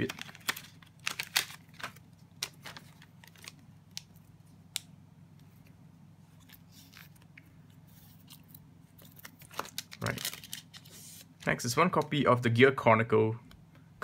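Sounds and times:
plastic sleeve crinkling: 0.0 - 4.9, 6.4 - 12.1
faint low hum: 0.0 - 14.0.

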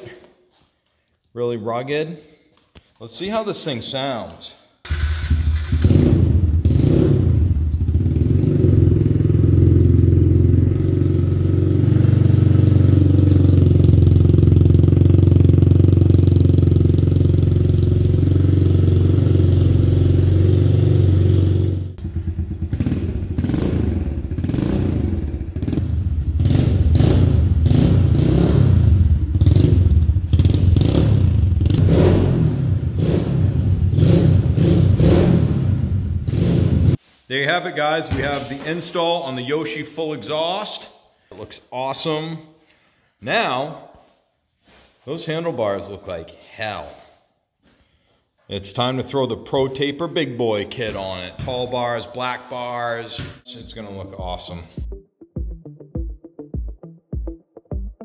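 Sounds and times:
motorcycle engine revving: 4.9 - 37.0.

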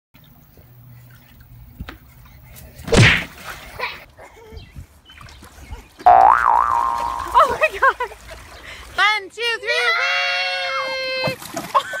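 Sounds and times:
splash into paddling pool: 2.9 - 3.9, 6.3 - 8.6.

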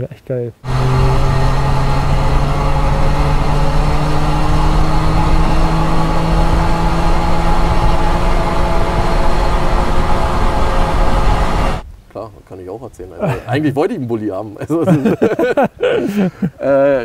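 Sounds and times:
two-stroke van engine running: 0.6 - 11.8.

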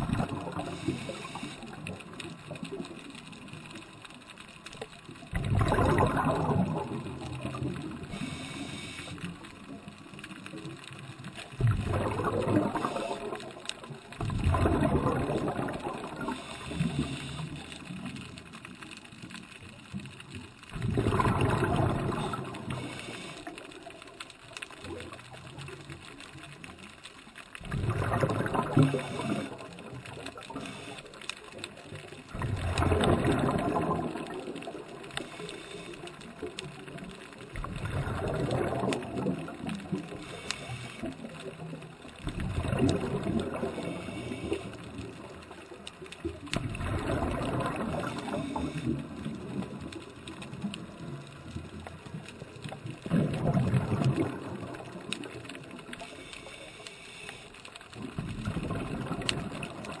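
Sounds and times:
diver breathing underwater: 0.0 - 2.2, 5.3 - 9.5, 11.6 - 13.6, 14.3 - 18.0, 20.9 - 24.0, 27.7 - 31.4, 32.3 - 36.6, 37.6 - 41.7, 42.3 - 45.2, 46.8 - 49.4, 55.9 - 57.7
underwater exhaled bubbles: 0.0 - 60.0.

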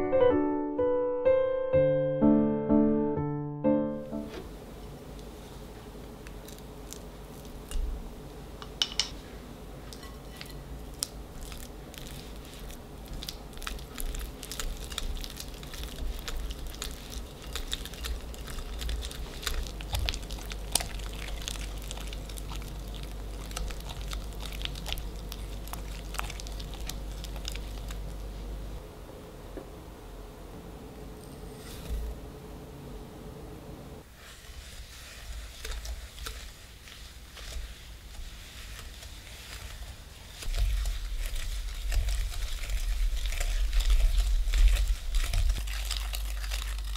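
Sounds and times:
whisk scraping against glass: 9.9 - 10.7.

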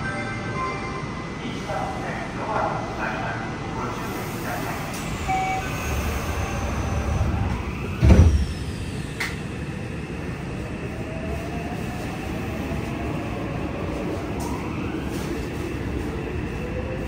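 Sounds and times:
subway train wheels rumbling: 0.0 - 17.0
loud thump: 8.0 - 8.5.

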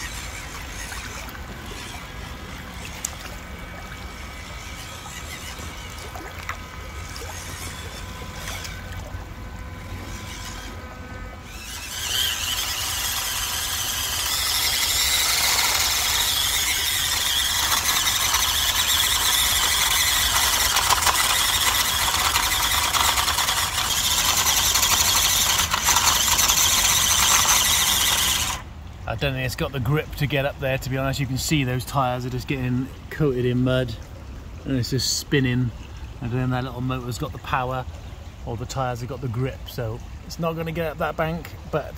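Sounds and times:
toy motor and gears whining: 0.0 - 28.7
tyres spinning in mud: 11.5 - 28.6.

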